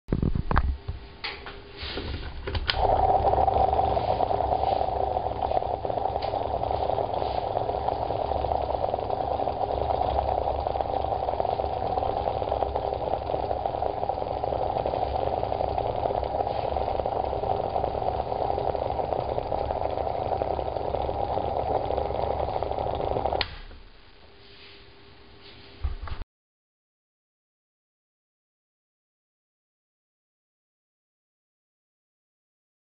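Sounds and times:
low hum: 2.3 - 24.4.

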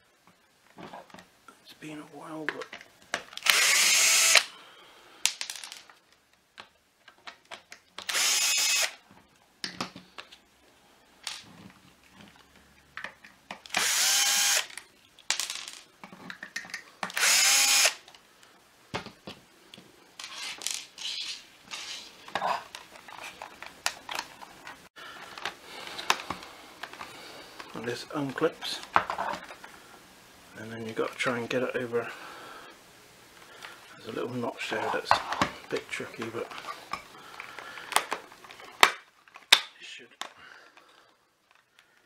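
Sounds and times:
power drill backing out screws: 8.0 - 8.9, 13.7 - 14.8, 17.1 - 18.0.

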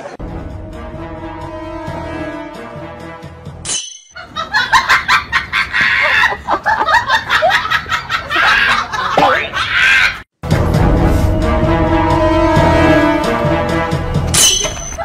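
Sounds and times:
background music: 0.0 - 5.2, 10.4 - 15.0
rapid choppy laughter: 4.2 - 10.2.

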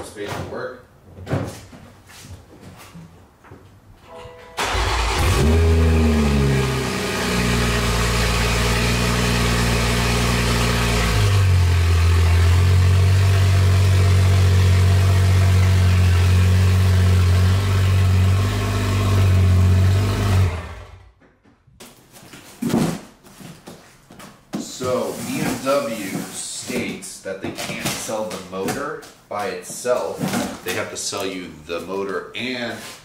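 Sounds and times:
car engine cold start and idling: 4.4 - 21.1.

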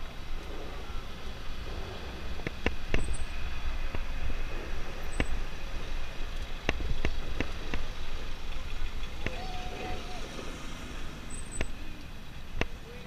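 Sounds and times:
wind on microphone: 0.0 - 13.0
sharp clicks: 11.4 - 12.8.

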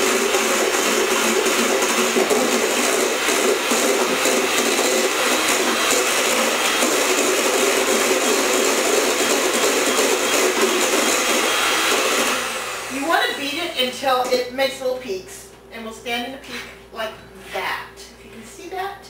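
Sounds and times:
electric mixer whipping in metal bowl: 0.0 - 13.8.

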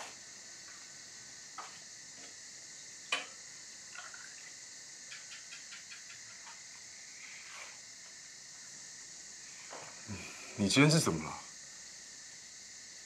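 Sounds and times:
night insects chirring: 0.0 - 13.0
small ticks: 3.1 - 8.7.

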